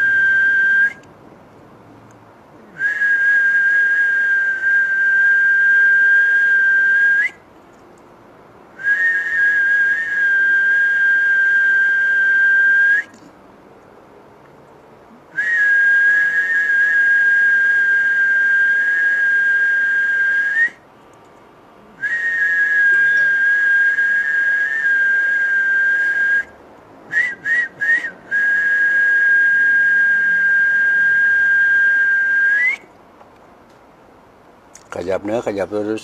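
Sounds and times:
short whistled chirps: 22.0 - 26.4
long high whistled notes: 22.0 - 26.5.

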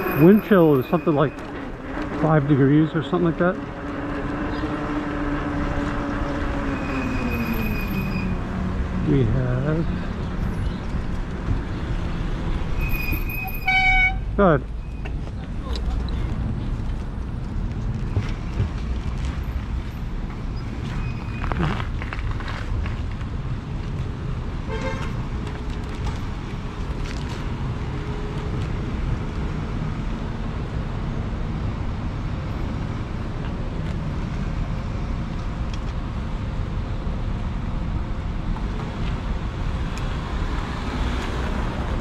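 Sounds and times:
traffic and road noise: 0.0 - 42.0
short horn toot: 12.8 - 14.3.

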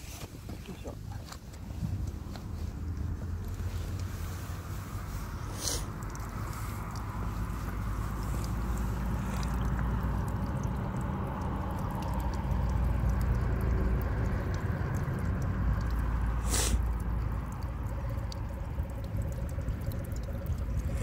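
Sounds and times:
wet squishes of fish rubbed: 0.0 - 10.0
water trickling over hands: 0.0 - 21.0.

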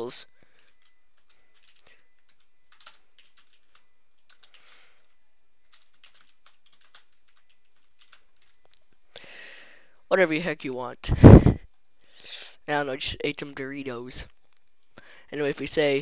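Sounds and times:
faint keyboard typing: 0.4 - 9.1.

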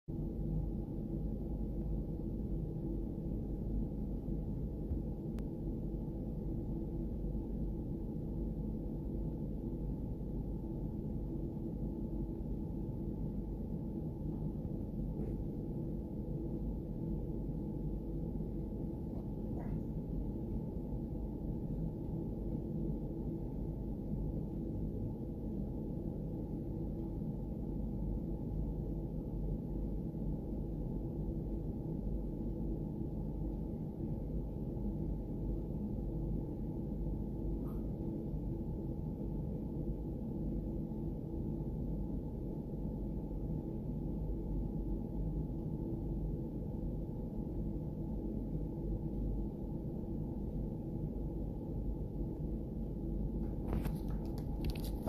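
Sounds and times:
steady low hum over rumble: 0.1 - 55.0.

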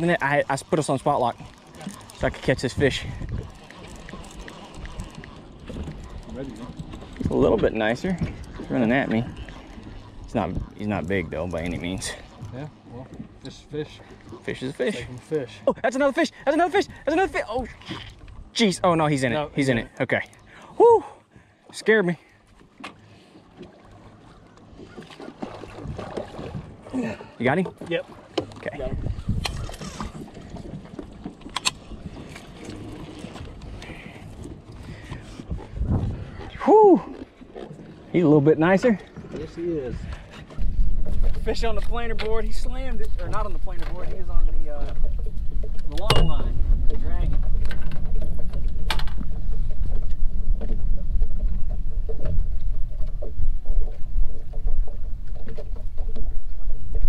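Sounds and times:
water slapping a boat: 0.0 - 57.0
fishing reel reeling: 0.4 - 7.2
wind on microphone: 2.2 - 3.7, 28.8 - 31.0, 31.8 - 37.2, 39.2 - 57.0
water slapping against boat hull: 22.6 - 26.9, 27.5 - 36.6.

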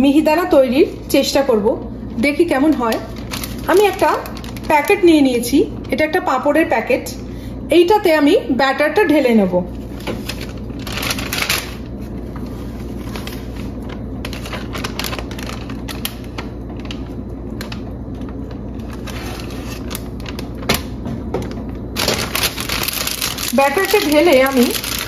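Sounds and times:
steady low hum: 0.0 - 25.0
plastic snack packet crinkling: 2.5 - 5.2, 10.2 - 12.0, 13.0 - 20.9, 22.0 - 25.0.

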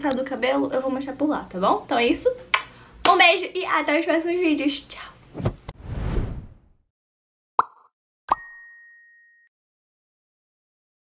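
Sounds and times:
cartoon pop sound effects: 7.6 - 7.9.

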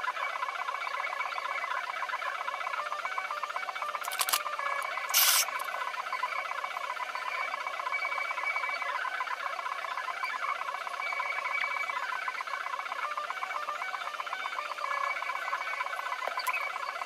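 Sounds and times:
sharp clicks: 4.0 - 5.7.

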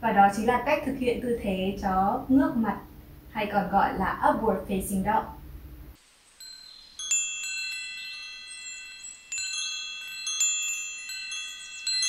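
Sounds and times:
wind chimes ringing: 6.2 - 12.0.

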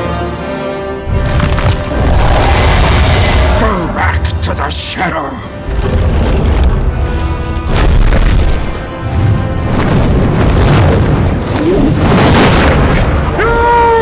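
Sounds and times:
dramatic orchestral music: 0.0 - 14.0
deep booms and rumbling: 1.1 - 4.6, 5.6 - 13.4
man shouting: 13.4 - 14.0.

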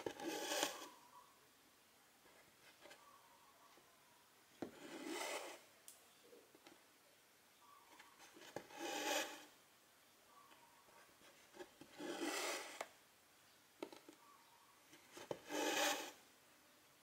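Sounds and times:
thread rasping through fabric: 0.0 - 0.9, 15.2 - 16.2.

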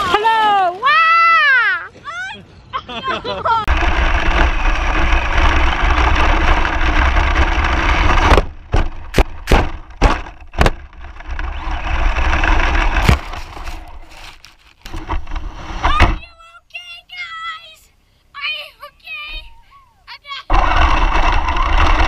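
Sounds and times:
rc car driving over grass: 3.7 - 16.2, 20.5 - 22.0
hard knocks of car tumbling: 6.6 - 13.8.

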